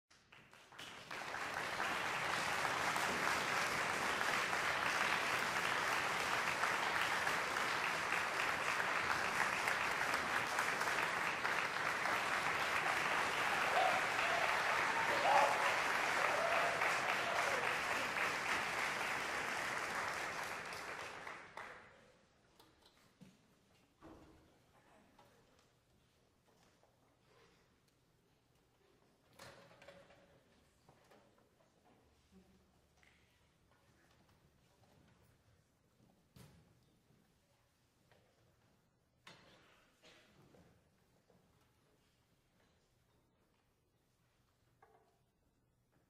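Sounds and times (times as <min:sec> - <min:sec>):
audience applauding: 0:00.3 - 0:21.9.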